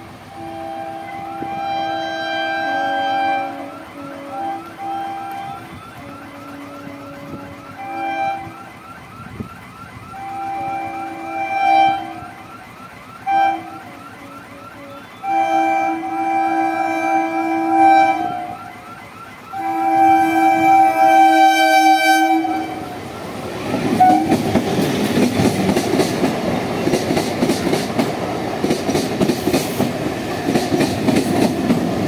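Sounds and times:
train air horn blasts: 0:00.0 - 0:08.8, 0:10.1 - 0:12.4, 0:13.2 - 0:18.7, 0:19.5 - 0:24.6.

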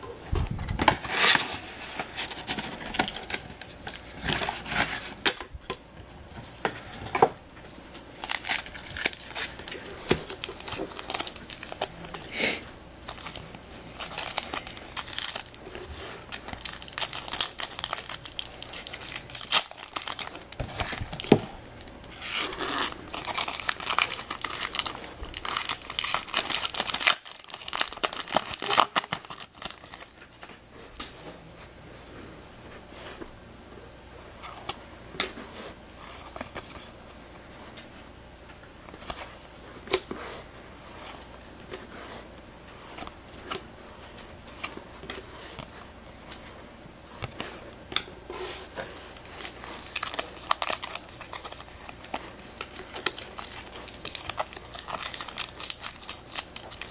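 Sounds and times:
foil wrappers tearing and crinkling: 0:08.1 - 0:12.4, 0:13.1 - 0:30.4, 0:48.9 - 0:56.9.

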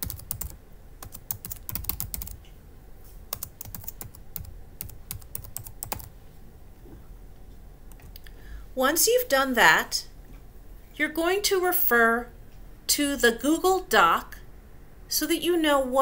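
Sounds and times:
typing on computer keyboard: 0:00.0 - 0:02.4, 0:03.3 - 0:06.1.

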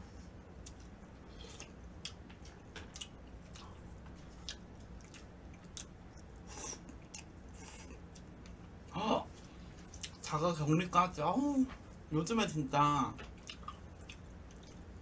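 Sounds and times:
person chewing noodles: 0:00.5 - 0:10.3, 0:13.4 - 0:15.0.

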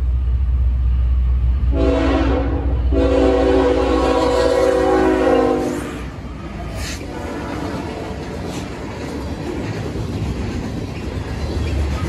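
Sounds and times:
locomotive air horn: 0:01.7 - 0:06.2, 0:06.8 - 0:08.1
train wheels clattering on rails: 0:06.0 - 0:12.0.

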